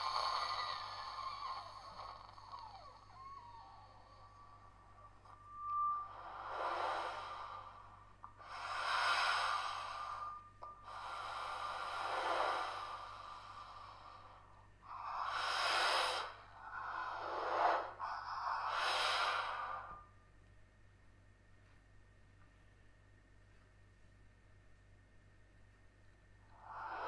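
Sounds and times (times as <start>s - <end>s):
faint steady high tone: 0.0s - 15.0s, 19.4s - 21.3s.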